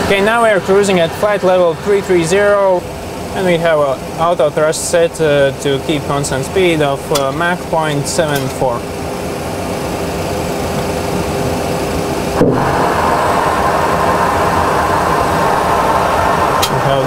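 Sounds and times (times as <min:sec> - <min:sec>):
cockpit air noise: 0:00.0 - 0:17.0
loud rushing air: 0:12.3 - 0:17.0.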